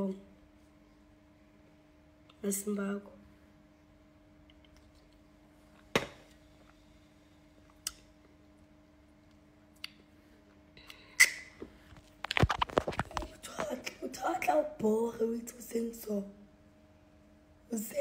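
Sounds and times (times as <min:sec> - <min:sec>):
faint steady hum: 0:00.0 - 0:18.0
phone being handled: 0:12.0 - 0:13.3.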